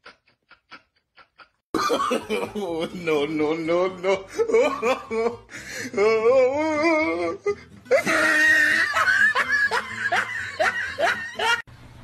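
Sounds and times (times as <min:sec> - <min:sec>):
person laughing hard: 0:00.0 - 0:03.3, 0:03.9 - 0:11.7.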